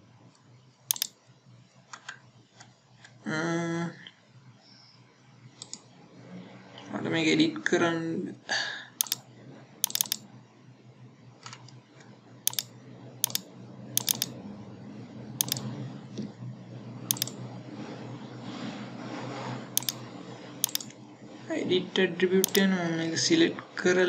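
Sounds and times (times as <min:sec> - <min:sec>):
faint low hum: 0:00.0 - 0:24.0
computer mouse clicking: 0:00.9 - 0:01.2, 0:05.6 - 0:05.8, 0:09.0 - 0:10.2, 0:12.5 - 0:14.4, 0:15.4 - 0:15.7, 0:17.1 - 0:17.4, 0:19.8 - 0:20.0, 0:20.6 - 0:20.9, 0:22.4 - 0:22.7.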